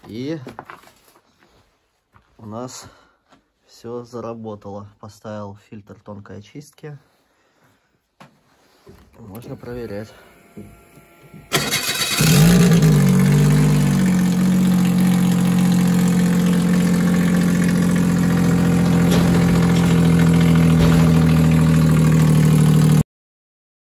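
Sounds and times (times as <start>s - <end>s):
snowmobile engine idling: 11.5s - 23.0s.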